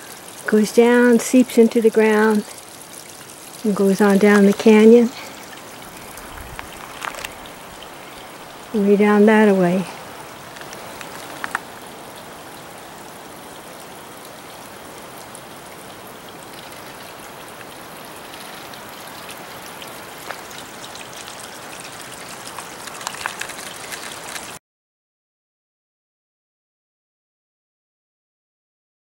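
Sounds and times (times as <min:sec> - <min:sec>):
waterfall splashing over rocks: 0:00.0 - 0:24.6
faint clicks: 0:06.0 - 0:08.3, 0:10.5 - 0:11.7.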